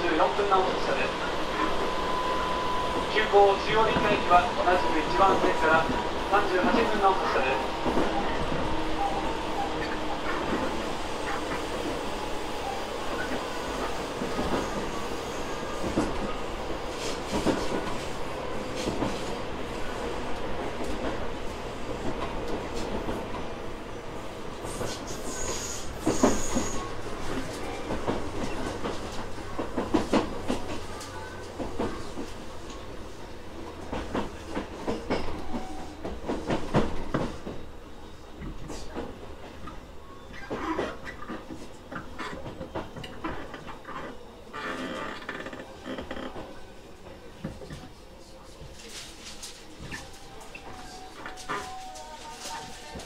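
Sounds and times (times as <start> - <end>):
train rumble: 0.0 - 53.0.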